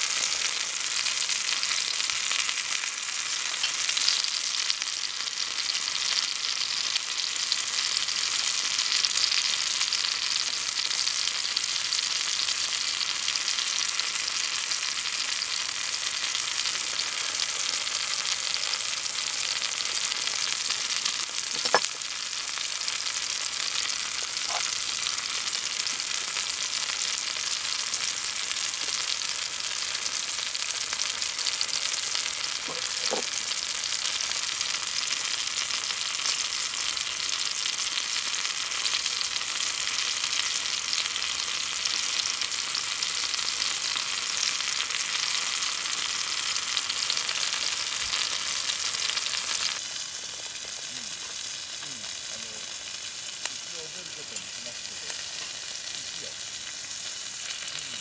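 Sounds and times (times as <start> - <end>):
food sizzling in oil: 0.0 - 58.0
knife and fork clinking on pan: 21.5 - 22.0.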